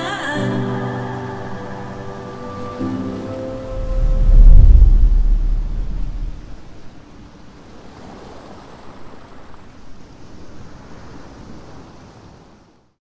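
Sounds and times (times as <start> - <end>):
ocean surf rushing: 0.0 - 12.9.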